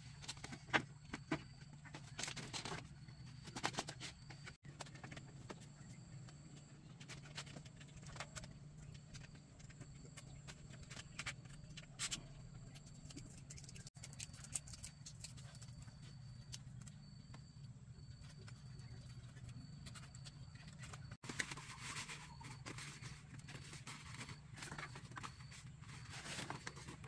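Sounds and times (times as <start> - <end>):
bamboo strips clicking and rustling: 7.0 - 17.0.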